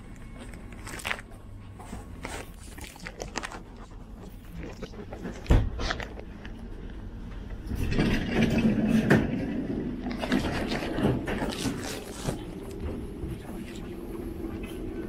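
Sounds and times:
train rumble and clatter: 6.6s - 15.0s.

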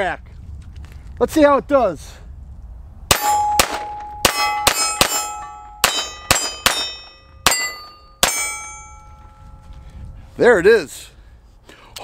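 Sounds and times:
pistol shots: 3.1s - 8.6s
steel target ringing: 3.1s - 9.6s.

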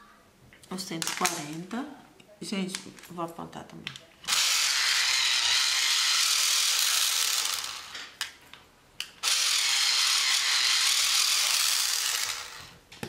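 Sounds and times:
pencil sharpener grinding: 4.3s - 8.2s, 9.2s - 12.8s.

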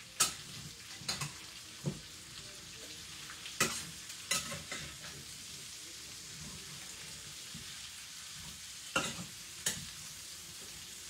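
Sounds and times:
vegetables sizzling in a pan: 0.0s - 11.0s
fork clinking against pan: 3.6s - 4.9s.

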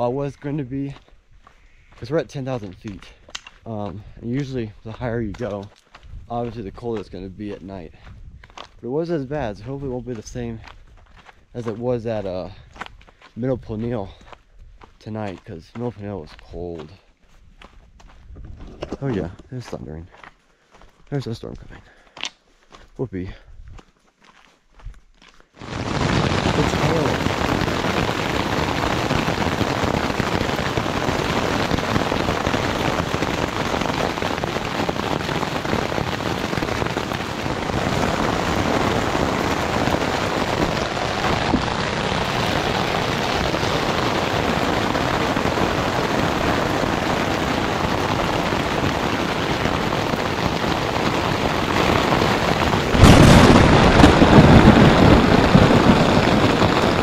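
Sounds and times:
rain drumming on tent fabric: 0.0s - 1.1s, 2.0s - 7.7s, 25.6s - 57.0s.

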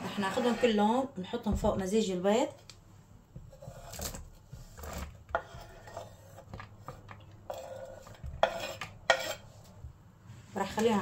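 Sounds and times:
scraping on wooden cutting board: 0.0s - 1.0s, 3.4s - 9.8s.

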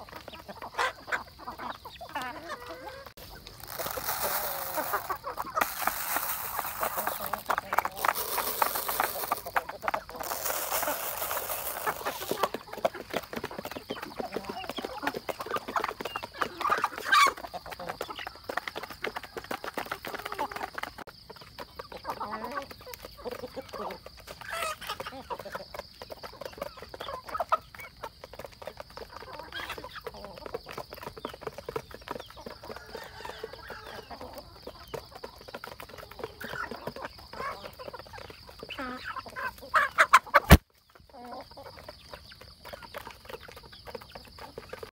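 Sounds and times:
beaks pecking grain: 0.0s - 44.9s
chickens clucking: 0.0s - 44.9s
grain pouring onto plate: 3.4s - 12.5s.

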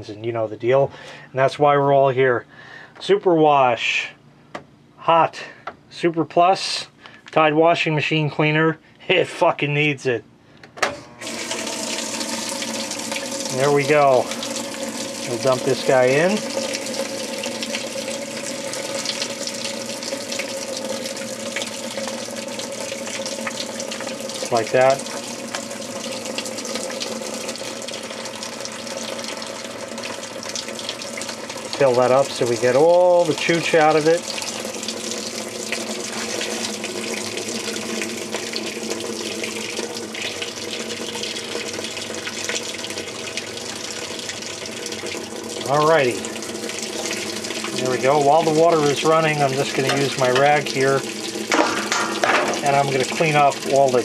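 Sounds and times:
water pouring into washer tub: 11.2s - 54.0s.

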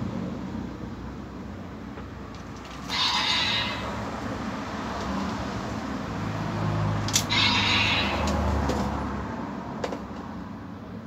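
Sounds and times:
toy belt electronic sound effects: 2.8s - 4.0s, 7.2s - 8.4s.

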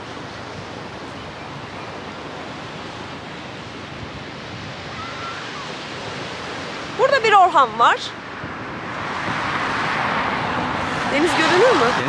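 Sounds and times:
sea surf on shingle: 0.0s - 12.0s
wind buffeting microphone: 0.0s - 12.0s
wind rushing: 3.6s - 12.0s.

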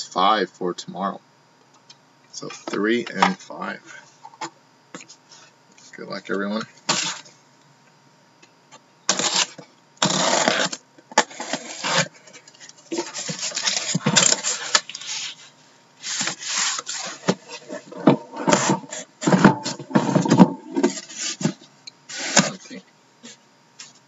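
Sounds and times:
cardboard scraping and rubbing: 9.1s - 12.3s, 12.9s - 22.6s.

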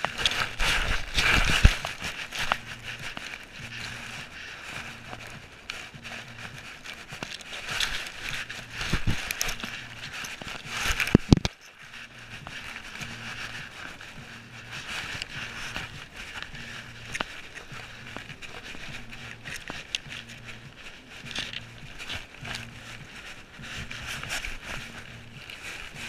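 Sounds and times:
grass brushing against camera: 0.0s - 26.0s.

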